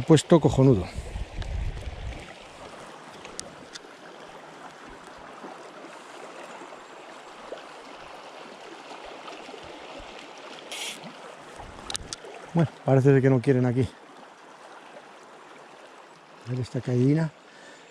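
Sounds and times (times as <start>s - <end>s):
faint clicks: 3.1s - 3.9s
short hiss: 10.7s - 11.1s.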